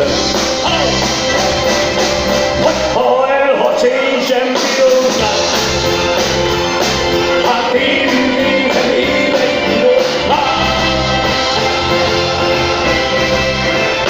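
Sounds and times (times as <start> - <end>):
rock band playing: 0.0 - 14.0
man singing into microphone: 2.6 - 5.8, 7.3 - 13.0.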